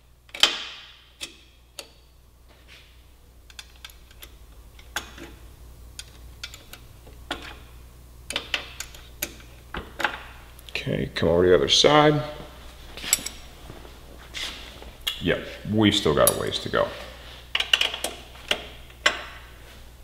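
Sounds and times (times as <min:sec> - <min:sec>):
wrench clicking on bolts: 0:00.3 - 0:02.1, 0:03.5 - 0:05.4, 0:06.0 - 0:07.6, 0:08.3 - 0:10.2, 0:17.6 - 0:19.4.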